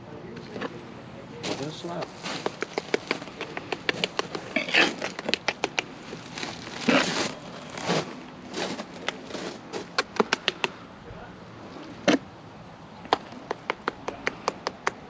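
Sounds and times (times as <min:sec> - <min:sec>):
trowel scraping wet mortar: 0:03.9 - 0:05.8.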